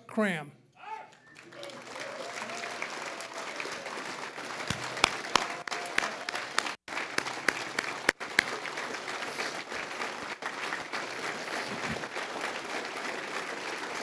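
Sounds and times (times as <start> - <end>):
audience applauding: 1.1 - 14.0
sharp close claps: 4.6 - 14.0.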